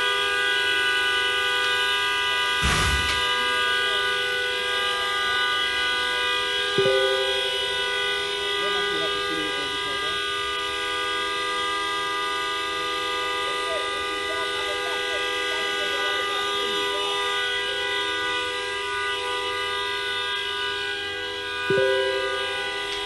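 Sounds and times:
vehicle horns sounding together: 0:00.0 - 0:23.0.

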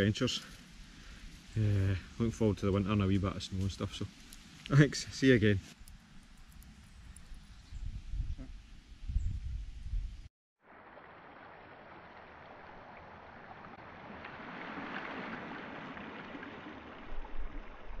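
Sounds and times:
waves lapping on pebbles: 0:10.7 - 0:18.0.

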